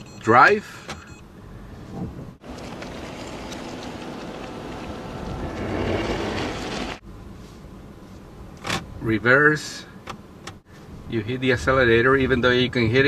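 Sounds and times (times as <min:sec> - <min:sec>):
moving car rumble: 0:00.0 - 0:13.0.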